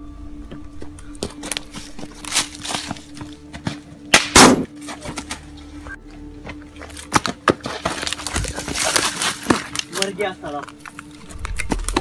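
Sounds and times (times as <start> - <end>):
low droning background music: 0.0 - 12.0
pistol shot: 4.1 - 4.7.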